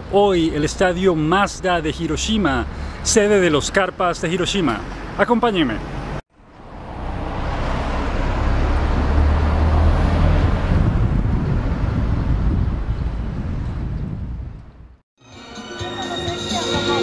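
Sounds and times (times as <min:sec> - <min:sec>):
car driving past: 0:06.4 - 0:12.4.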